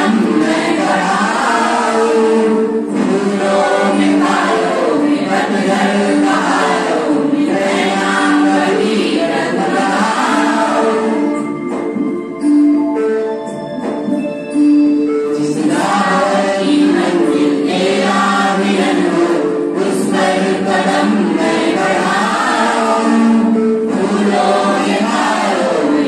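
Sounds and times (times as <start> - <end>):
choir singing: 0.0 - 11.7, 15.3 - 26.0.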